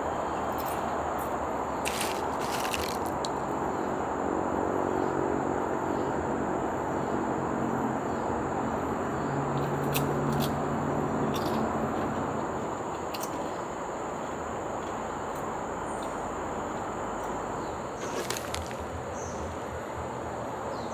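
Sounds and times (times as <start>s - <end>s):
vehicle engine hum: 0.0s - 20.9s
potato chips crackling: 1.8s - 3.3s.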